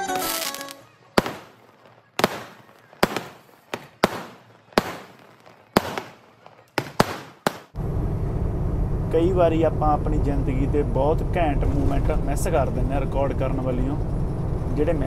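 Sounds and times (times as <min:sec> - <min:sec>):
fireworks bangs with echo: 0:00.1 - 0:07.8.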